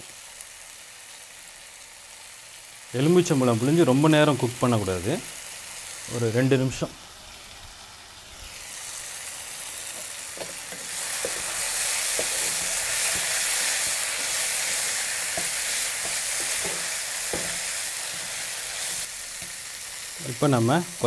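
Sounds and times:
curry sizzling in a pan: 0.0 - 21.0
spatula knocking and scraping pan: 9.9 - 19.6.

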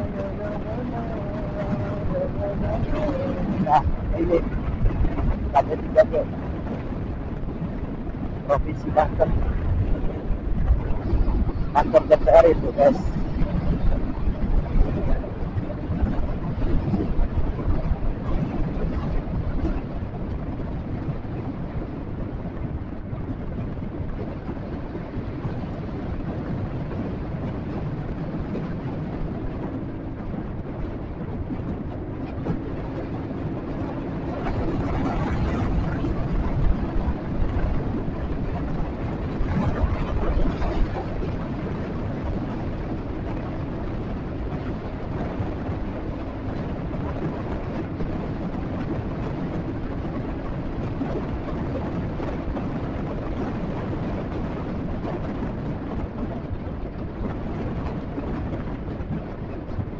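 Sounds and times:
wind rumble on microphone: 0.0 - 59.9.

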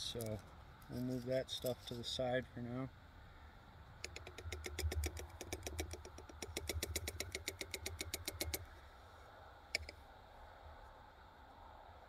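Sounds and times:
metal tin shaken rapid clicking: 4.1 - 8.6.

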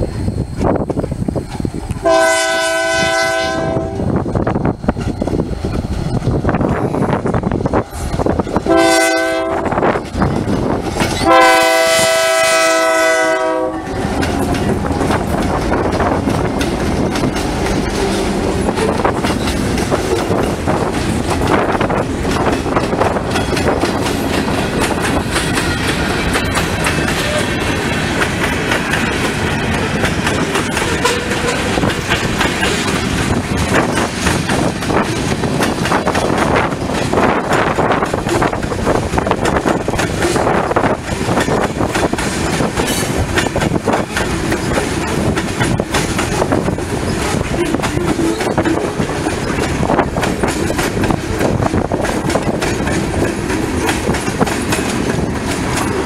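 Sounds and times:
train rumbling and clacking on rails: 0.0 - 56.0
wind on microphone: 0.0 - 56.0
locomotive air horn blasts: 2.0 - 4.1, 8.7 - 9.8, 11.2 - 14.2, 30.8 - 31.7.

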